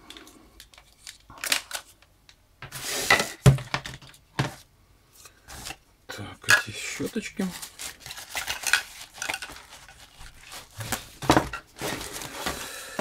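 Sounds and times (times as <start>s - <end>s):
fabric bag rustling: 7.4s - 12.8s.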